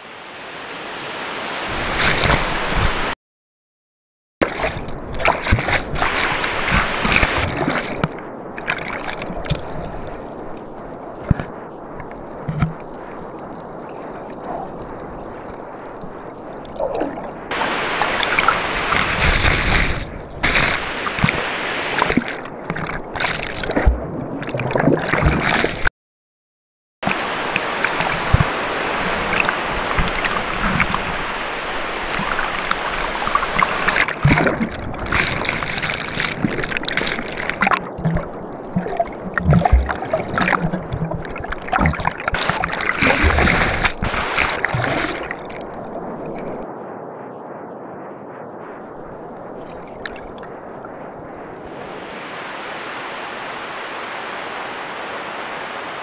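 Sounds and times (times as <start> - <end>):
ocean waves breaking: 0.0 - 3.2, 4.4 - 25.9, 27.0 - 47.6, 48.8 - 56.0
water washing at waterline: 1.6 - 3.2, 4.4 - 10.1, 16.6 - 25.9, 27.0 - 46.6.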